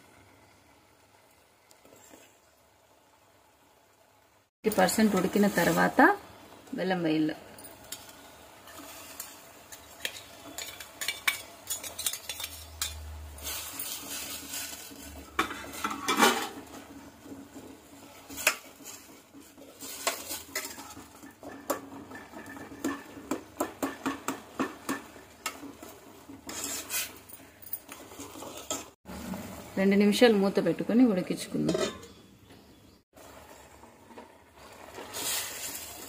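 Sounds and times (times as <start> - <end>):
spoon scraping and clinking in pot: 7.5 - 16.8, 18.3 - 29.0, 31.6 - 32.2.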